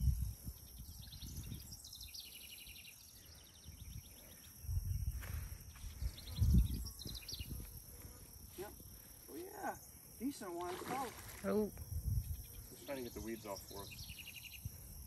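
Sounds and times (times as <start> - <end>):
wind rumbling on microphone: 0.0 - 2.3, 3.3 - 9.0, 10.9 - 15.0
insects trilling: 0.0 - 15.0.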